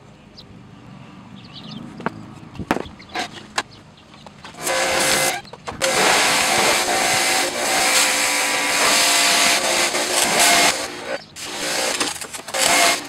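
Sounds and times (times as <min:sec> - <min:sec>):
pressure washer machine hum: 0:04.6 - 0:13.0
pressure washer water jet hiss: 0:04.6 - 0:13.0.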